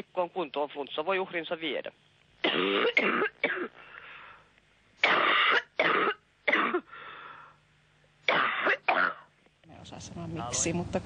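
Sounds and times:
faint telephone line hum: 0.0s - 11.0s
woman coughing over telephone: 2.4s - 3.8s, 5.0s - 6.9s, 8.3s - 9.3s.

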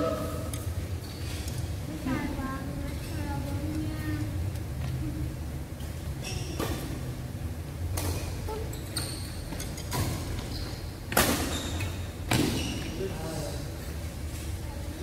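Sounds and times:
steady low hum: 0.0s - 15.0s
shoe squeaks on court floor: 6.2s - 6.8s, 10.4s - 13.0s.

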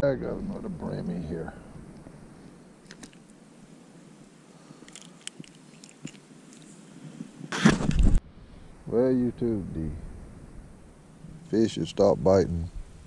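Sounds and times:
clicks and wet squishes: 2.8s - 3.4s, 4.8s - 6.7s.

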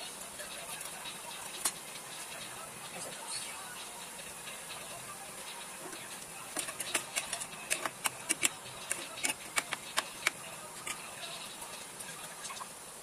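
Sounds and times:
pan simmering hiss: 0.0s - 13.0s
metal spatula scraping frying pan: 5.8s - 11.5s.

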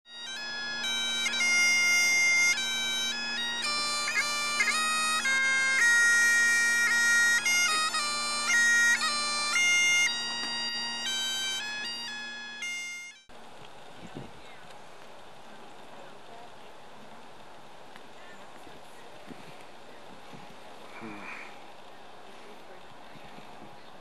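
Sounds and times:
bagpipe music: 0.1s - 13.3s.

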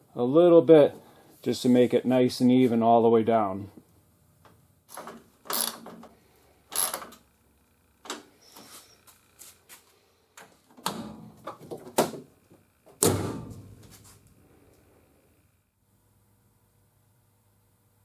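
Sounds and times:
car hood slammed shut: 13.0s - 13.7s.

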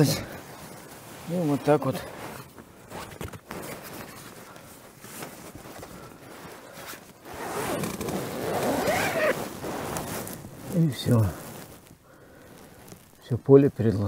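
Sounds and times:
fabric rustling and scraping: 0.0s - 12.1s
zipper: 6.8s - 11.8s.

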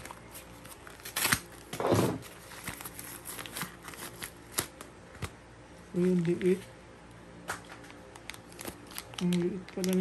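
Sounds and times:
plastic packaging crinkling: 0.0s - 5.3s, 7.6s - 10.0s.

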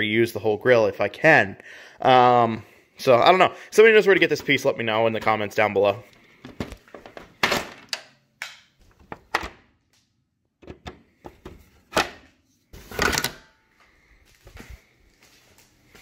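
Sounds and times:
hard plastic clicking and knocking: 10.6s - 12.2s.

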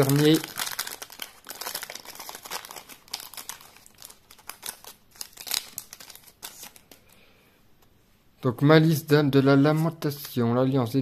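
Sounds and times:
foil wrapper crinkling: 0.0s - 7.1s.

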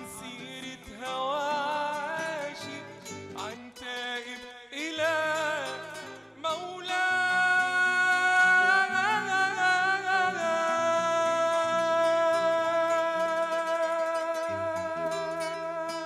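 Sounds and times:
acoustic guitars strummed and plucked: 0.0s - 16.0s
man singing: 0.0s - 16.0s.

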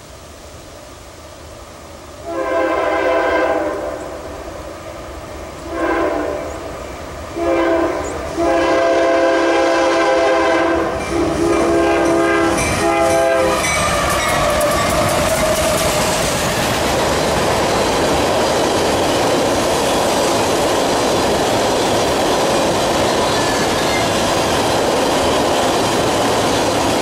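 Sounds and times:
train rumbling past: 0.0s - 27.0s
locomotive air horn blasts: 2.2s - 4.1s, 5.7s - 6.5s, 7.4s - 15.0s
wheels clattering on rails: 10.9s - 27.0s.

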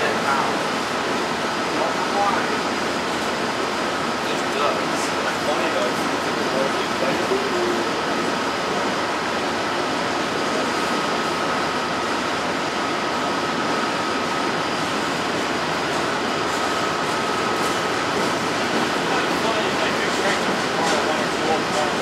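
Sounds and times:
train wheels clattering on rails: 14.8s - 22.0s.

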